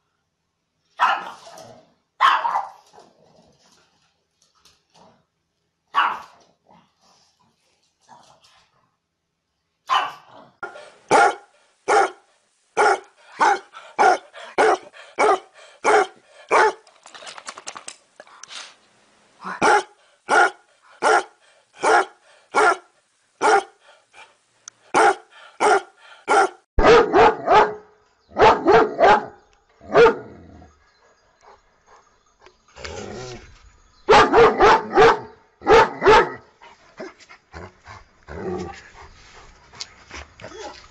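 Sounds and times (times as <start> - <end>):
dogs barking: 1.0 - 1.4, 2.2 - 2.8, 5.9 - 6.3, 9.9 - 12.2, 12.8 - 16.8, 19.6 - 23.8, 24.9 - 30.3, 34.1 - 36.4.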